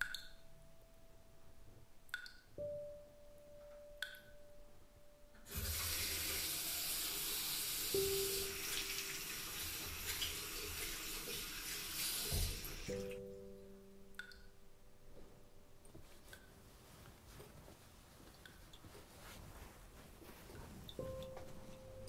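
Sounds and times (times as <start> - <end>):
faucet running into sink: 5.5 - 13.1.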